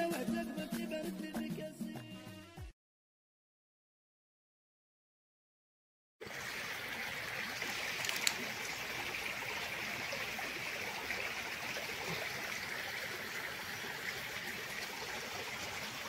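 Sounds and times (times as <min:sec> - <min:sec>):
stream trickling over stones: 0:06.2 - 0:16.0
small click: 0:08.0 - 0:08.4.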